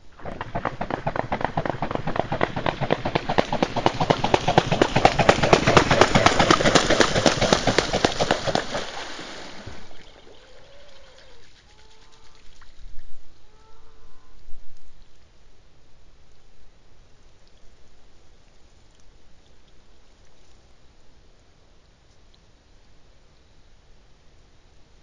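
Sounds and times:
swan splashing and wingbeats: 0.0 - 13.4
faint bird calls: 9.8 - 15.1.

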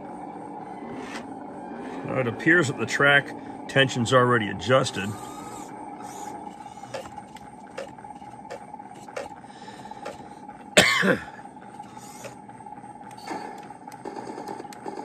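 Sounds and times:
steady hum: 0.0 - 15.0
short loud cough: 10.8 - 11.4.

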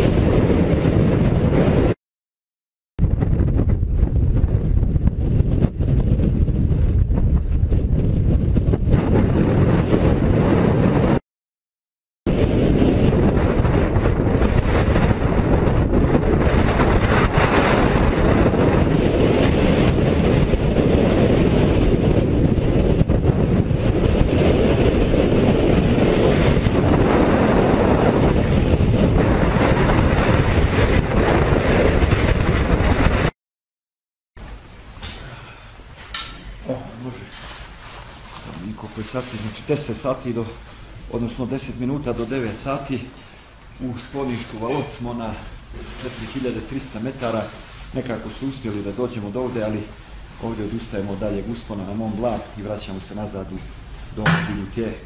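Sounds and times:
strong wind on microphone: 0.0 - 2.0, 3.0 - 11.2, 12.3 - 33.4.

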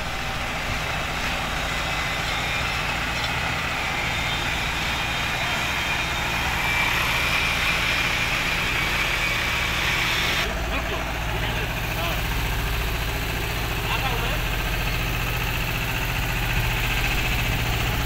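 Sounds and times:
truck diesel engine rumbling: 0.0 - 18.0.

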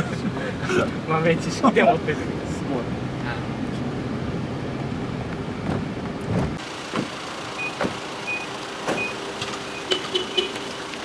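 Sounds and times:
vehicle cabin rumble: 2.6 - 11.0
reversing alarm beeping: 7.6 - 10.5.

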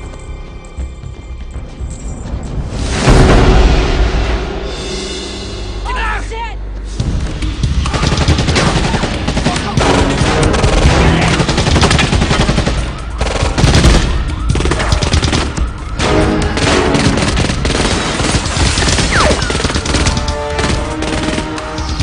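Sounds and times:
automatic gunfire: 7.9 - 22.0.

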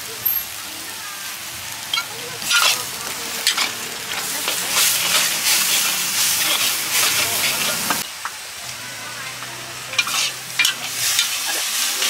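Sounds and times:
noodles sizzling in a wok: 0.0 - 12.0
metal spatula scraping a wok: 1.9 - 8.0, 9.9 - 12.0.

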